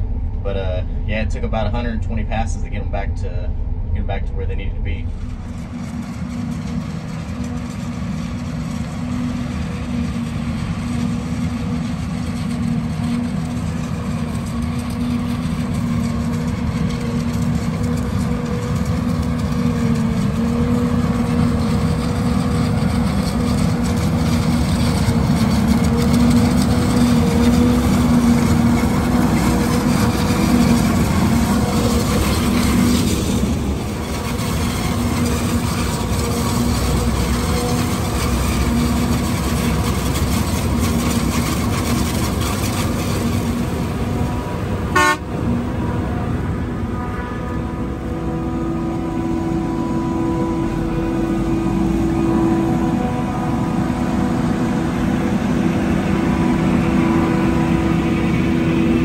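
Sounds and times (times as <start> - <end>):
forage harvester chopping corn: 5.2 - 45.7.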